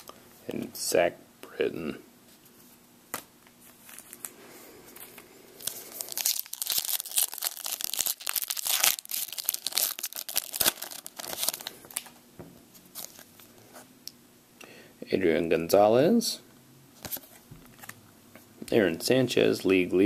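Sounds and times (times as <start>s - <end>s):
foil wrapper tearing and crinkling: 6.0s - 12.1s.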